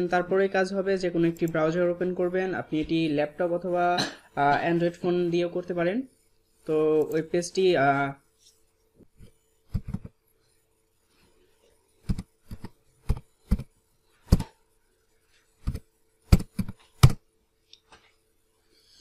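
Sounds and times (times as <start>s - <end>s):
computer keyboard typing: 15.7s - 17.2s.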